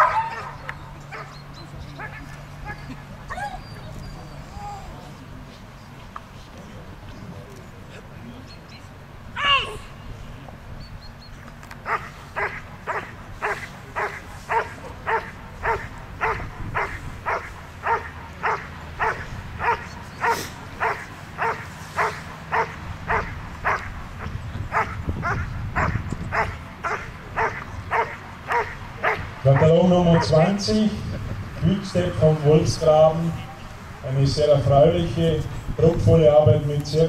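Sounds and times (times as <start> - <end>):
dog barking: 11.9 - 23.9, 24.7 - 30.4.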